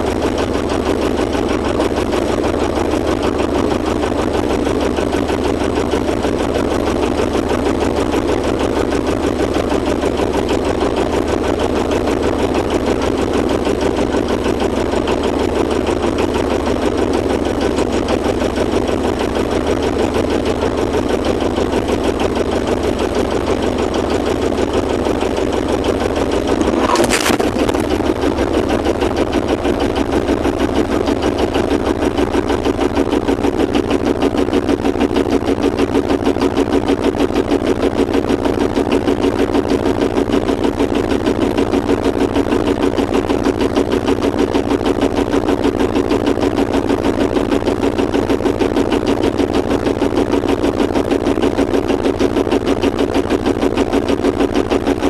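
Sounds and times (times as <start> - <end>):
boat engine throbbing: 22.6 - 55.0.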